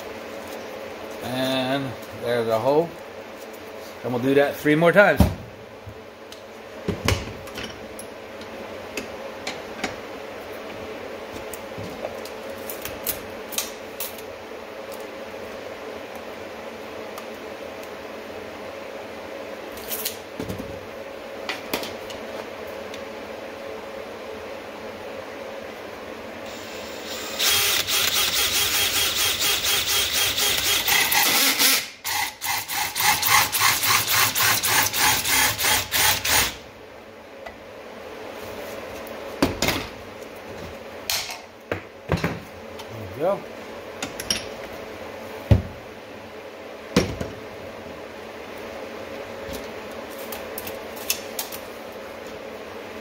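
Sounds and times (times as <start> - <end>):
drill cutting plastic pipe: 26.5 - 36.6.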